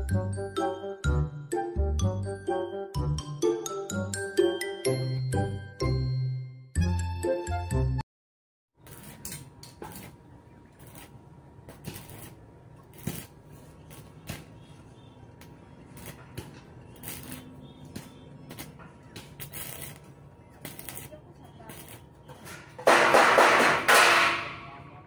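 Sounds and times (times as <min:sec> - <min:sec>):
arc welder crackling: 0:08.8 - 0:23.9.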